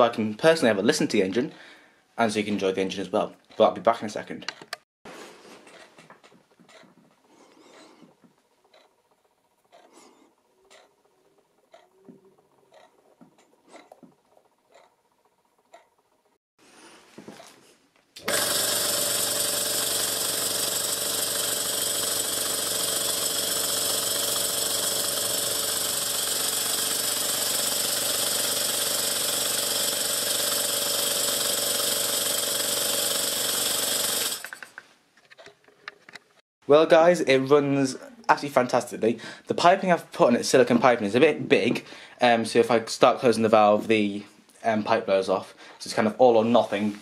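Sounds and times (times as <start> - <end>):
model steam engine running fast: 18.2 - 34.6.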